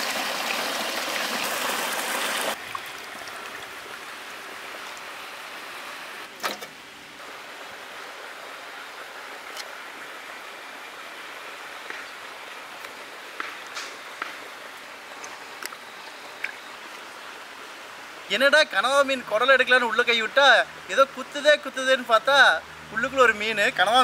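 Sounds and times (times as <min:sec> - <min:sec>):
soft steady hiss: 0:02.5 - 0:24.0
faint clicks in water: 0:16.4 - 0:16.6.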